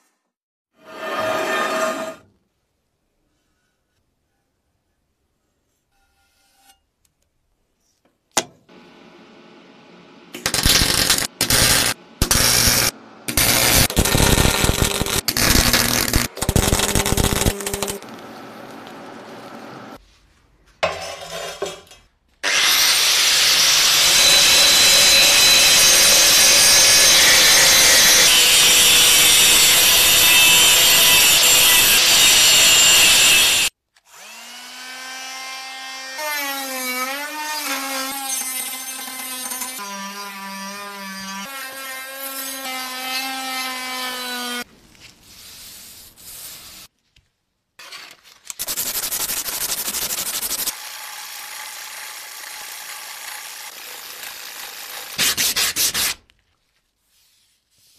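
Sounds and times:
axe head rubbing on abrasive surface: 0.8s - 2.3s, 5.9s - 6.9s
power tool grinding metal: 10.4s - 18.0s, 22.4s - 35.8s.

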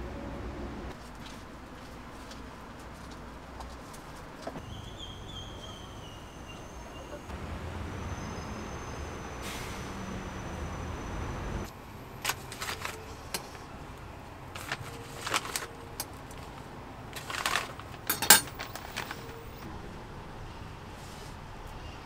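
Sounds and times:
metal cooking tools clattering: 17.2s - 19.3s.

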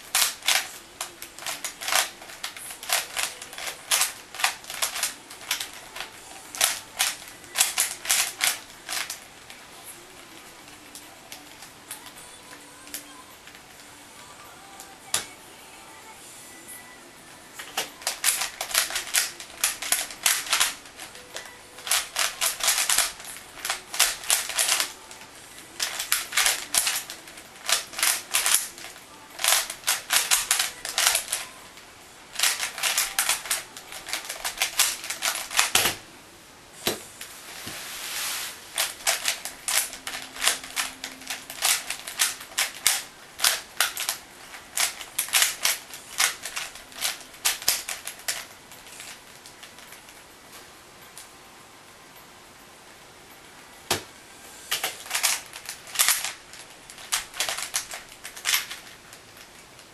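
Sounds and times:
puzzle cube clicking: 0.0s - 12.2s, 17.6s - 31.5s, 32.3s - 36.0s, 38.7s - 50.1s, 54.7s - 59.5s.

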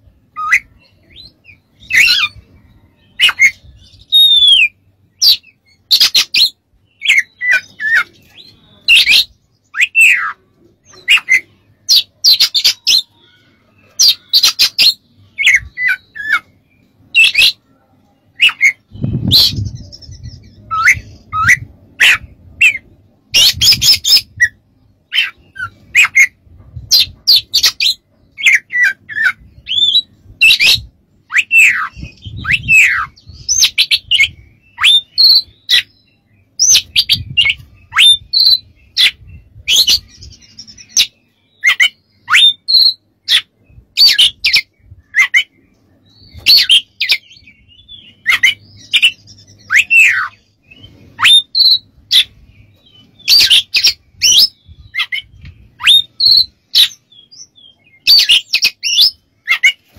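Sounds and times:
bird singing whistled phrases: 0.3s - 2.4s, 3.1s - 13.4s, 18.3s - 22.8s, 27.6s - 36.0s, 36.6s - 45.6s, 46.2s - 52.3s, 53.1s - 59.8s.

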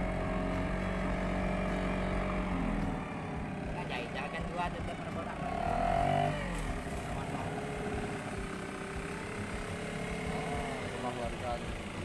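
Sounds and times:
small engine running: 0.0s - 12.0s.

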